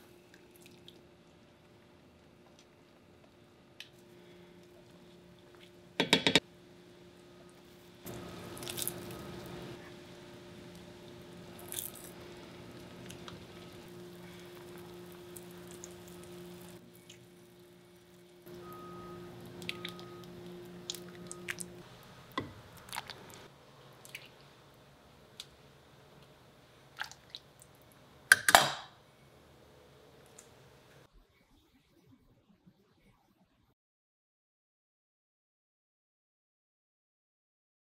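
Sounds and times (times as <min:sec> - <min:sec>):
steady hum: 0:00.0 - 0:26.8.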